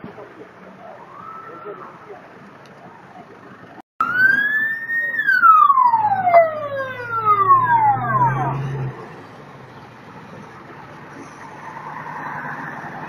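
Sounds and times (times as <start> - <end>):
emergency siren wail: 0.7 - 3.4, 4.0 - 9.7.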